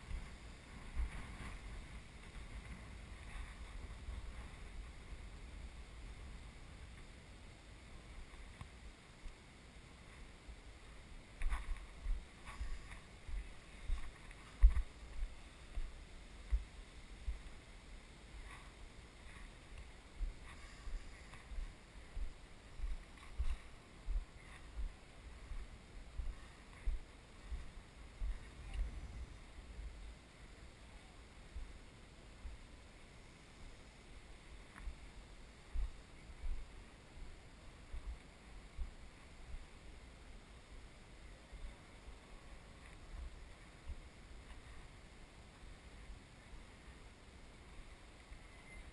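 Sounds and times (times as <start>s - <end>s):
footsteps on boulders: 0.0s - 5.3s, 11.4s - 17.6s, 18.3s - 29.2s
light scuffs: 11.4s - 15.9s.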